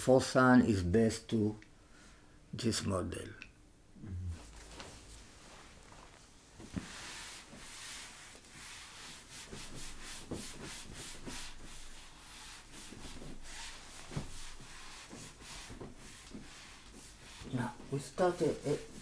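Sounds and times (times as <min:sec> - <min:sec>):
eraser rubbing whiteboard: 0:06.8 - 0:19.0.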